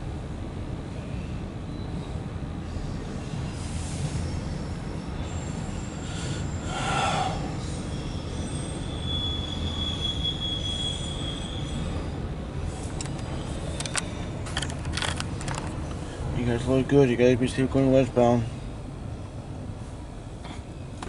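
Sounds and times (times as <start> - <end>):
freight train rumbling past: 0.0 - 21.0
high wheel squeal: 2.8 - 14.3.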